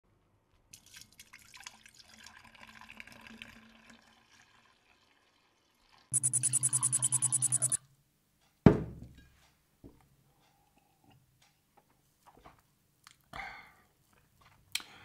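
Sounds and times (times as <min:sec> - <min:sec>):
juice pouring into a jug: 0:00.6 - 0:06.1.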